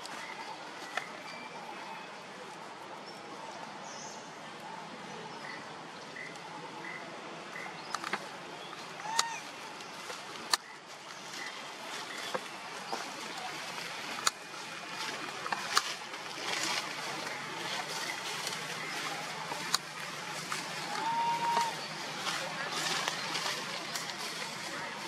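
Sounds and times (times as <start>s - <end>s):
steady rustling hiss: 0.0s - 25.0s.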